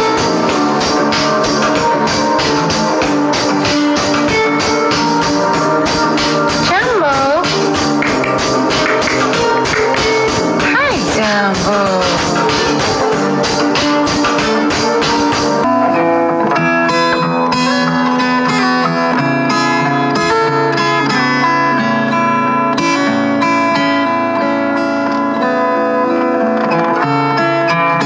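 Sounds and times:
music with a steady beat: 0:00.0 - 0:21.5
plucked-string tune: 0:00.0 - 0:22.0.

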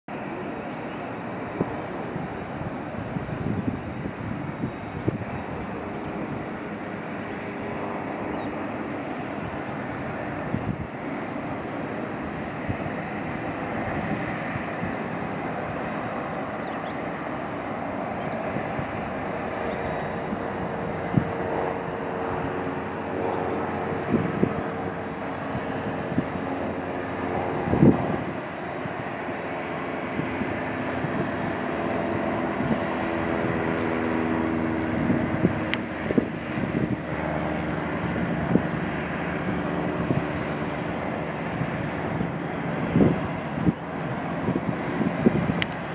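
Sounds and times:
distant jet engines rushing: 0:00.1 - 0:45.9.

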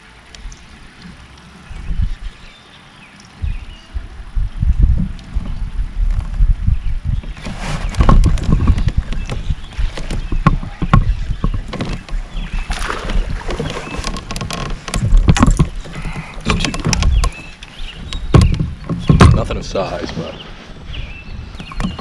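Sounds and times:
steady low rumble: 0:03.2 - 0:13.6
fishing tackle knocks and clicks: 0:07.9 - 0:19.6.

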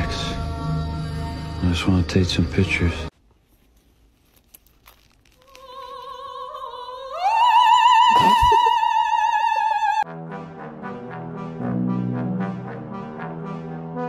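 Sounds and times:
operatic singing voice: 0:00.0 - 0:03.1, 0:05.6 - 0:10.0.

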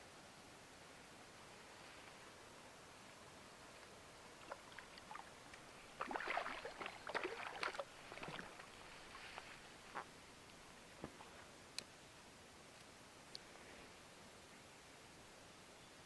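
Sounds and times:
water dripping: 0:04.4 - 0:08.9
water splashing: 0:04.4 - 0:10.0
fish thrashing splashes: 0:06.0 - 0:09.2.

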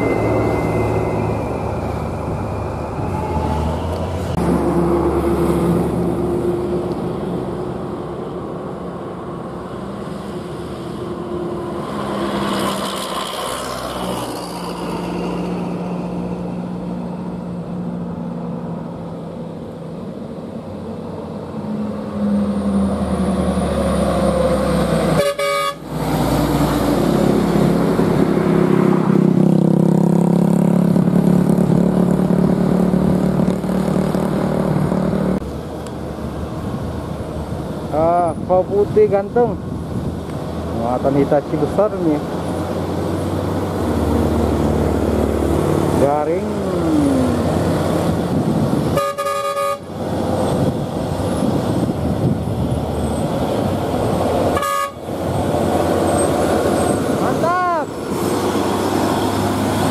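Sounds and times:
heavy trucks driving past: 0:00.0 - 0:59.9
vehicle horn: 0:25.2 - 0:25.9, 0:48.9 - 0:49.9, 0:54.6 - 0:55.0.

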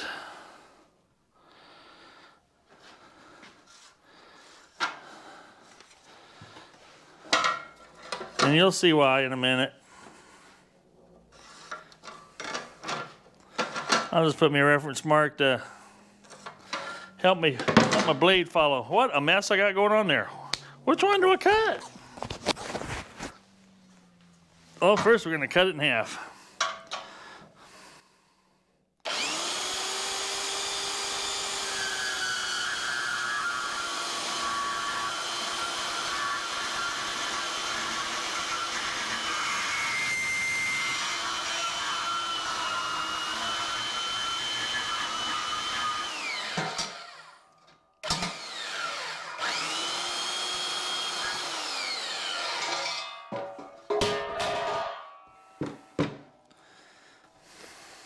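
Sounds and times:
band saw cutting steel: 0:29.1 - 0:47.4, 0:48.0 - 0:53.3
metal clanks: 0:52.6 - 0:56.0.

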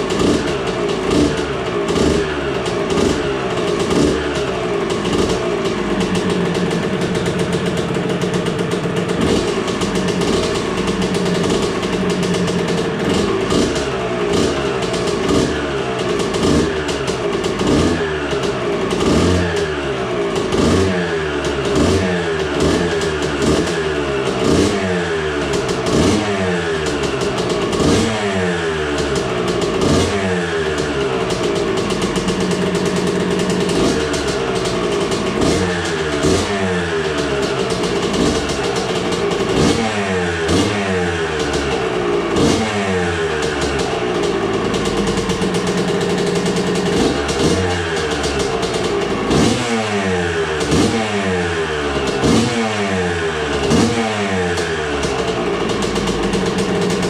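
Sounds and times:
two-stroke engine revving: 0:00.0 - 0:57.0.

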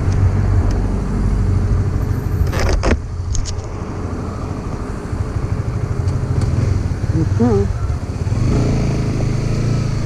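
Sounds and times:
motorcycle engine idling: 0:05.1 - 0:08.4.

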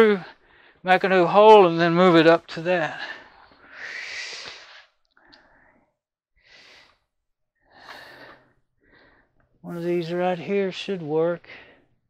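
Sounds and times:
faint breaths: 0:00.2 - 0:00.9, 0:02.9 - 0:09.9, 0:11.4 - 0:12.0.

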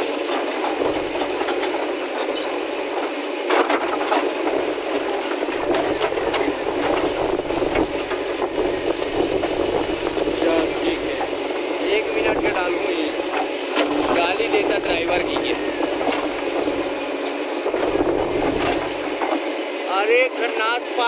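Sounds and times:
diesel engine running: 0:00.0 - 0:21.0
stone rattling and scraping: 0:05.0 - 0:11.4.

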